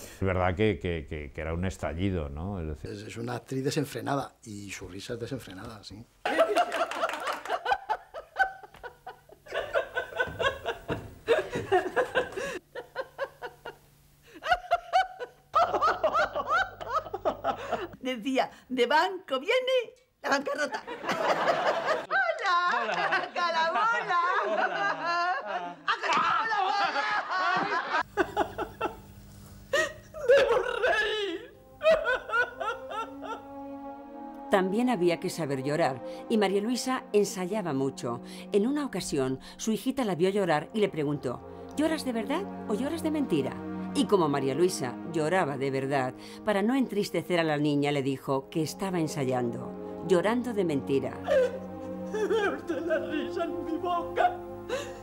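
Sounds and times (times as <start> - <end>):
woman laughing loudly: 6.3 - 18.0, 20.9 - 29.0, 29.7 - 33.5, 51.2 - 53.3
woman sobbing and wailing: 22.0 - 27.2, 29.7 - 33.7, 51.0 - 55.0.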